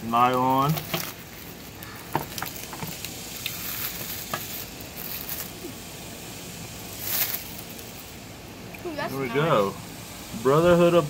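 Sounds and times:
plastic bag crinkling: 0.1 - 5.8, 6.8 - 8.1.

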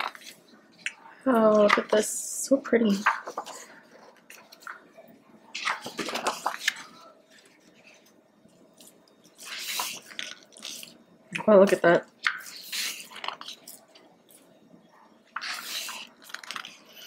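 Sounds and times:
book pages turning: 0.0 - 0.5, 2.9 - 4.8, 5.6 - 8.2, 8.8 - 11.0, 12.2 - 13.9, 15.4 - 17.0.

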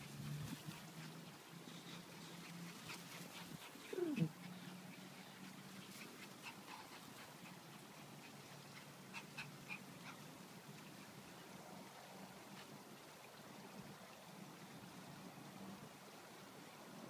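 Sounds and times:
small dog whining: 3.8 - 4.4.

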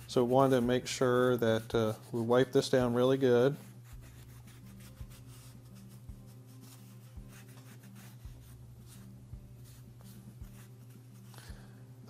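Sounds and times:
paper towel scrubbing metal: 0.0 - 9.1
steady low hum: 0.0 - 12.0.

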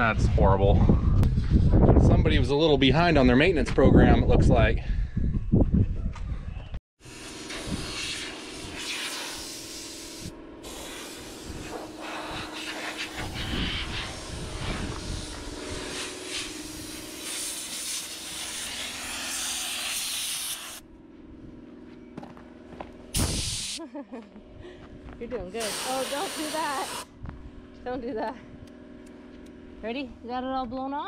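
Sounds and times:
compressed air hissing: 7.0 - 20.8, 23.2 - 23.8, 25.6 - 27.1.

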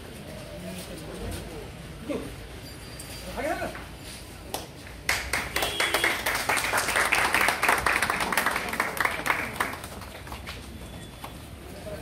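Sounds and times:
crowd applauding: 5.0 - 11.3.

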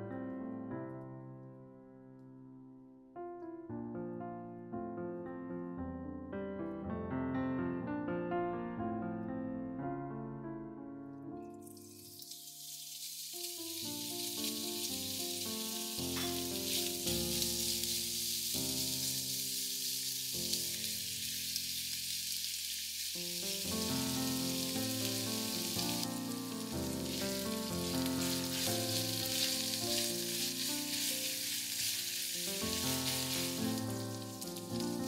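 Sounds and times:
meat sizzling in a frying pan: 11.6 - 35.0
background music: 23.4 - 35.0.

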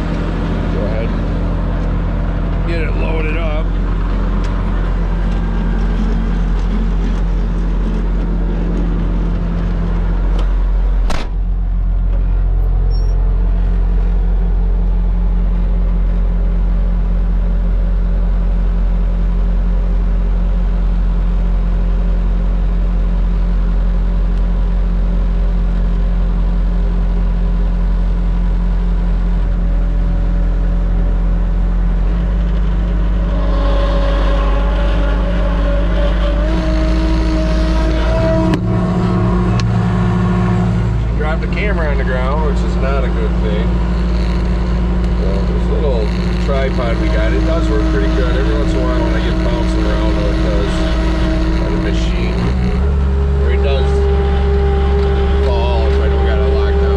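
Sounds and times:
diesel engine running: 0.0 - 56.9
higher tone rising: 33.2 - 56.9.

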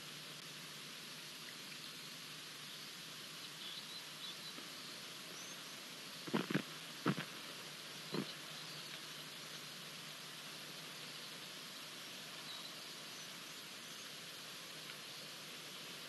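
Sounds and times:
outdoor ambience hiss: 0.0 - 16.0
faint high chirps: 12.3 - 14.2.

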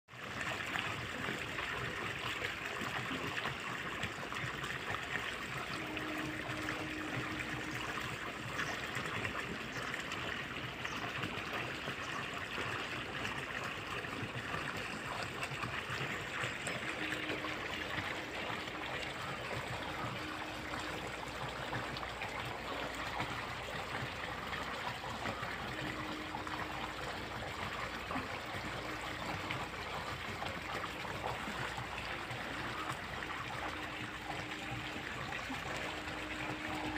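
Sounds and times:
water trickling in a tank: 0.1 - 36.9
faint hum: 15.8 - 36.9.

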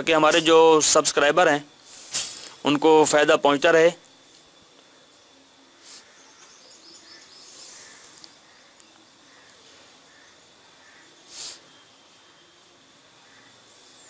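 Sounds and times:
background hiss: 0.0 - 14.0
faint high-pitched whine: 0.0 - 14.0.

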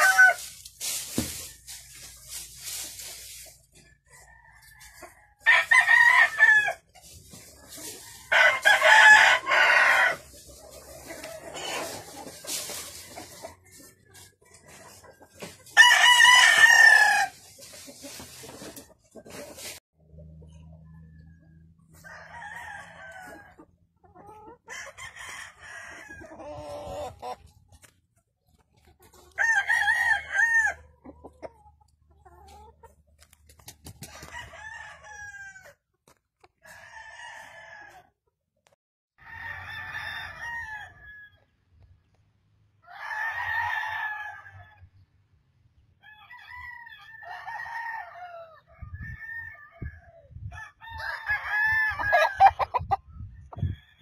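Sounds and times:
roosters crowing: 0.0 - 2.8, 4.0 - 13.9, 15.4 - 17.4, 21.1 - 27.4, 29.2 - 30.9, 34.1 - 35.8, 36.6 - 38.1, 39.2 - 41.5, 42.8 - 44.9, 46.0 - 54.0.

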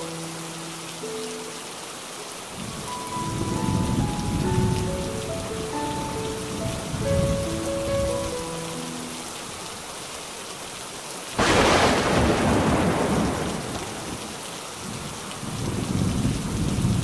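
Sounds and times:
steady rain: 0.0 - 17.0
thunder crack and rumble: 11.4 - 17.0.

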